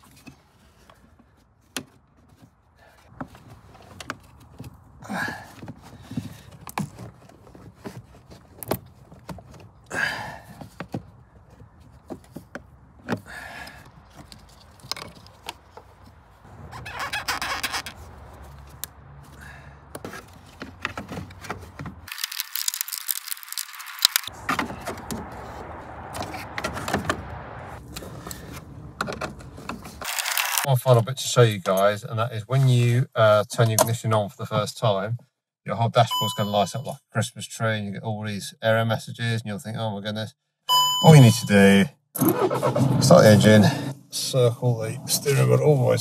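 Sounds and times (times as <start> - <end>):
plastic squeak: 16.6 - 18.2.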